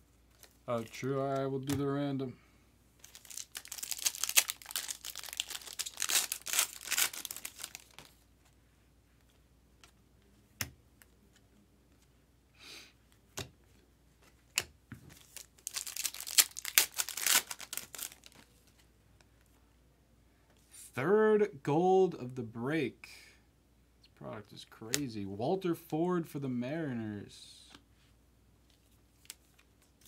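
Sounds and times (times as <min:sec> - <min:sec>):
foil wrapper tearing and crinkling: 0:03.0 - 0:08.1, 0:15.2 - 0:18.4.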